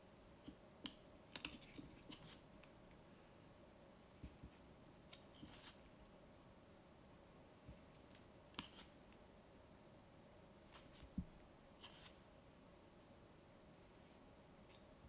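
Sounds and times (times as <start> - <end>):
book pages turning: 5.1 - 5.8, 11.8 - 12.2.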